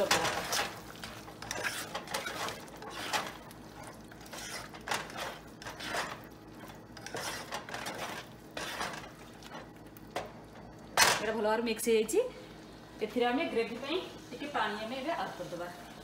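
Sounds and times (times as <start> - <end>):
spoon scraping thick curry in pan: 4.2 - 6.2.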